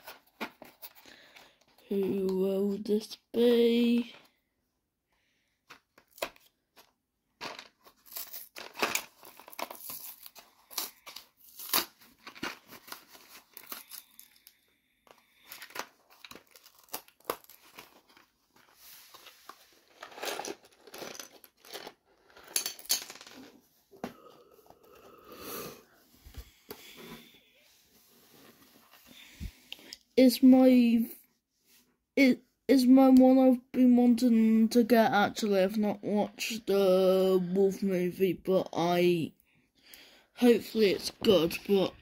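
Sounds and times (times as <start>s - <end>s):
foil packet crinkling: 7.5s - 14.6s, 15.2s - 18.7s.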